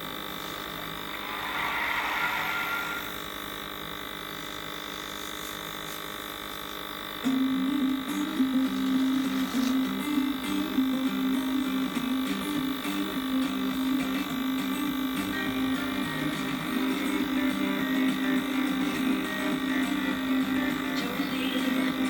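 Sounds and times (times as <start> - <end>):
small motor humming: 0.0 - 22.0
airy hiss: 0.3 - 3.2.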